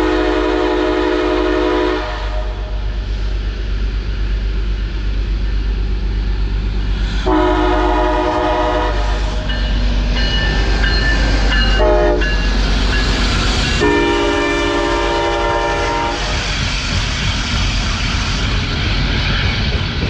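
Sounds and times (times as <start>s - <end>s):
locomotive air horn blasts: 0.0s - 2.8s, 7.2s - 9.4s, 11.8s - 12.3s, 13.8s - 16.4s
freight train rumbling and clattering: 0.0s - 20.0s.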